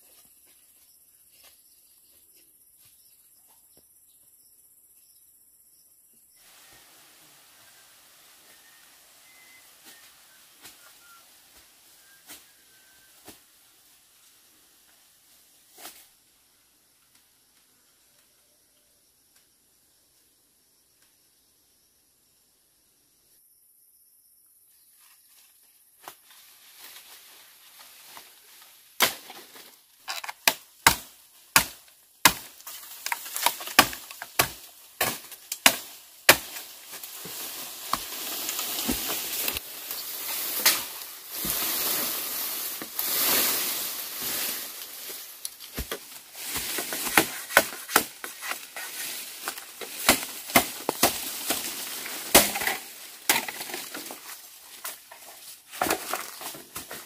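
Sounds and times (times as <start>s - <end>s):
dry leaves and branches rustling: 6.4s - 16.2s, 24.9s - 57.0s
machete chopping bamboo: 29.0s - 29.4s, 30.1s - 36.7s, 45.7s - 48.6s, 49.4s - 54.1s.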